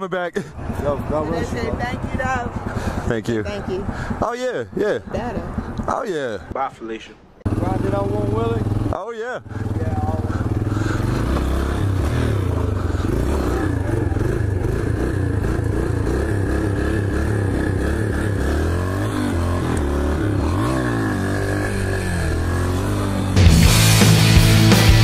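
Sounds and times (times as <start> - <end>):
dirt bike engine revving: 0.5 - 4.2, 7.4 - 25.0.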